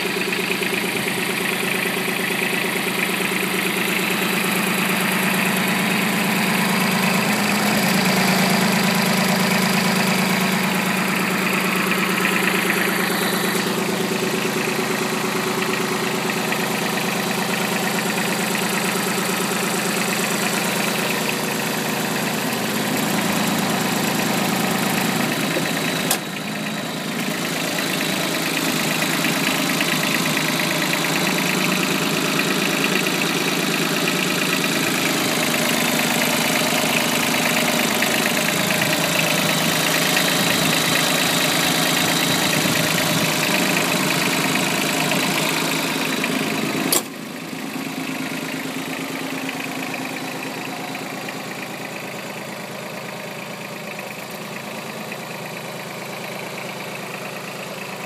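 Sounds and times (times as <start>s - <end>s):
tractor diesel engine idling: 0.0s - 58.0s
sharp click: 46.9s - 47.1s.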